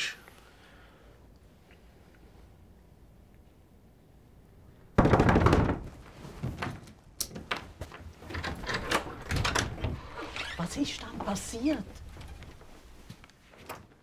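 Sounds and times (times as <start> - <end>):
loud banging on a door: 5.0 - 6.0
rustling: 5.8 - 14.0.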